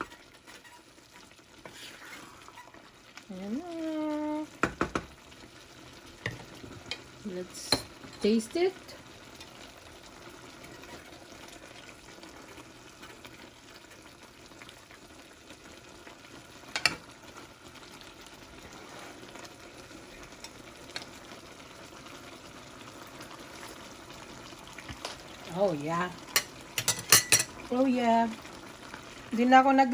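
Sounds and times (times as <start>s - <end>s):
vegetables sizzling in a pan: 0.0s - 29.9s
spoon clinking against pan: 26.4s - 27.5s.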